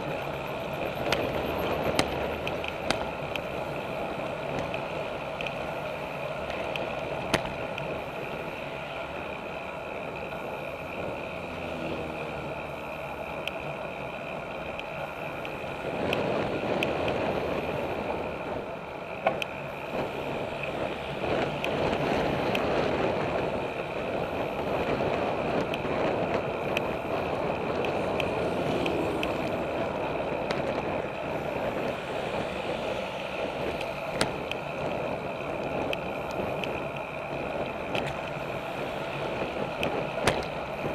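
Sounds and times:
bicycle rolling noise: 0:00.0 - 0:40.9
wind noise: 0:15.0 - 0:40.9.

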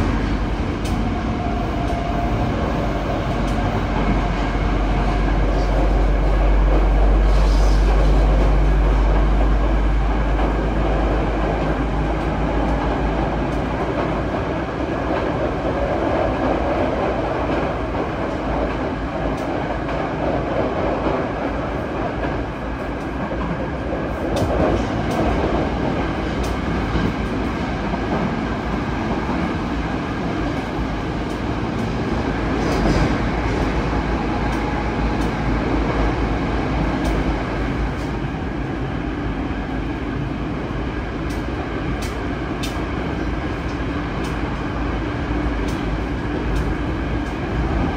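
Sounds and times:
train wheels rumbling on rails: 0:00.0 - 0:47.9
sharp clicks from track: 0:00.8 - 0:01.0, 0:34.4 - 0:35.4, 0:41.2 - 0:42.9, 0:43.6 - 0:44.5, 0:45.6 - 0:45.9, 0:46.5 - 0:47.4.

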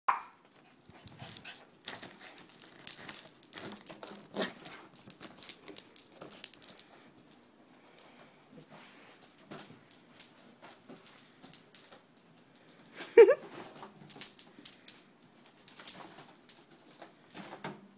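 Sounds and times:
foil balloon crinkling and tapping: 0:00.2 - 0:06.4.

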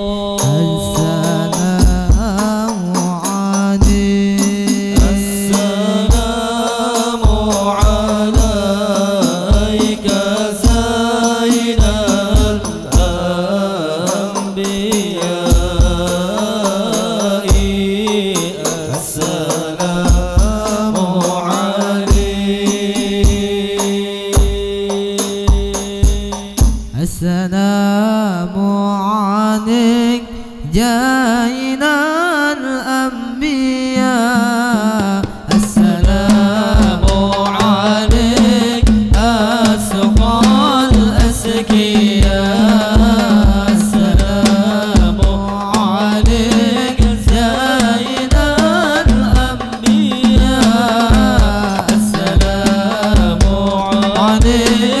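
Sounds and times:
men chanting through pa: 0:00.0 - 0:28.7, 0:29.4 - 0:55.0
single voice singing: 0:00.0 - 0:55.0
frame drums: 0:00.3 - 0:27.2, 0:34.0 - 0:55.0
bass hand drum strokes: 0:35.2 - 0:55.0.

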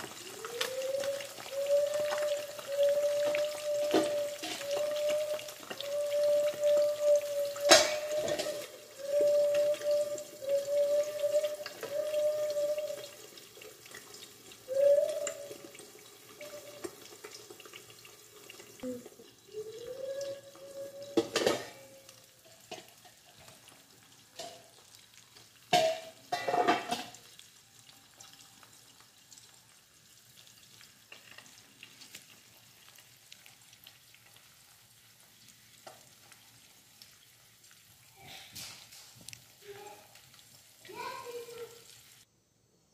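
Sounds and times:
eggs sizzling in oil: 0:00.0 - 0:42.3
metal lid clanking: 0:25.7 - 0:27.2.

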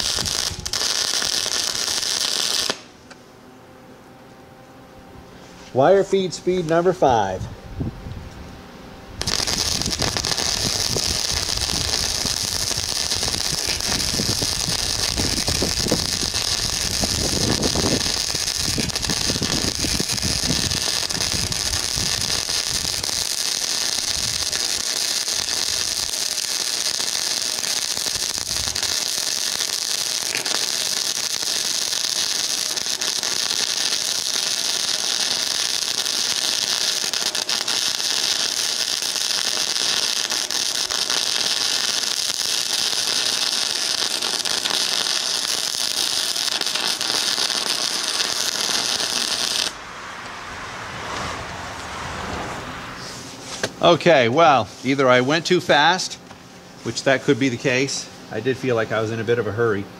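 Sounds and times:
welding arc crackling and sizzling: 0:00.0 - 0:03.2, 0:09.2 - 0:49.8.

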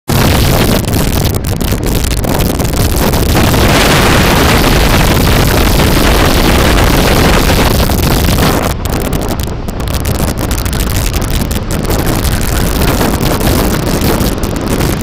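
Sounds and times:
wind buffeting microphone: 0:00.1 - 0:15.0.

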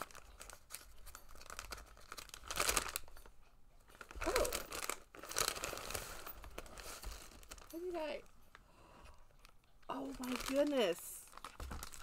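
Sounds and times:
paper bag rustling: 0:03.9 - 0:08.2, 0:09.9 - 0:12.0.

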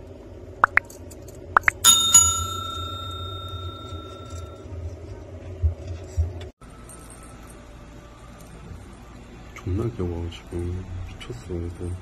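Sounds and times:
small bell ringing: 0:01.6 - 0:04.6.

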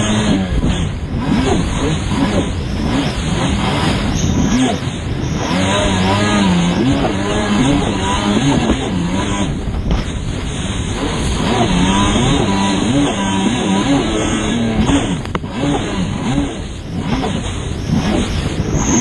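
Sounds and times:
two-stroke watercraft engine revving: 0:00.0 - 0:19.0
water rushing and spraying: 0:00.0 - 0:19.0.

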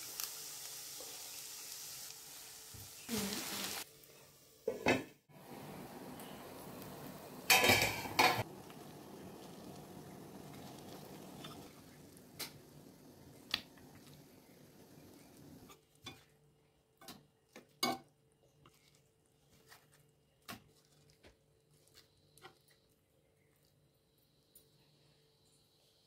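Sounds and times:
eggs sizzling in a pan: 0:00.0 - 0:18.1.

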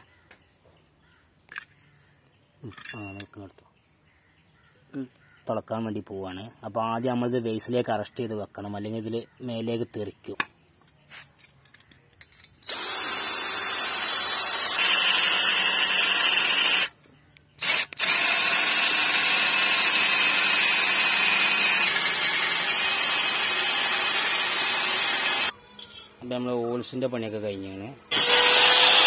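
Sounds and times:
electric drill boring through steel: 0:12.6 - 0:16.9, 0:17.6 - 0:25.5, 0:28.1 - 0:29.0.

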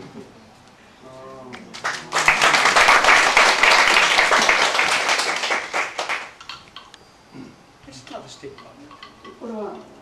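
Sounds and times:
audience applause: 0:01.7 - 0:06.4.

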